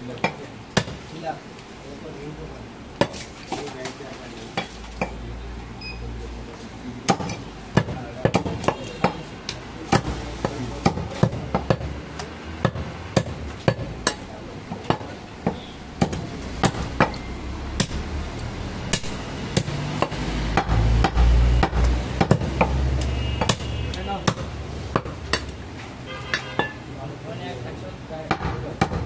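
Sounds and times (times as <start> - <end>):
knife chopping meat on wood: 9.9 - 17.2, 18.9 - 22.8, 23.4 - 25.6, 28.3 - 29.0.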